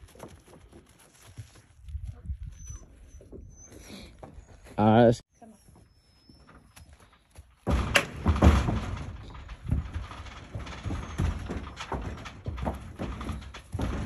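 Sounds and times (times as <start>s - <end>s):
hooves on metal trailer floor: 6.2s - 14.0s
trailer rattling: 7.1s - 14.0s.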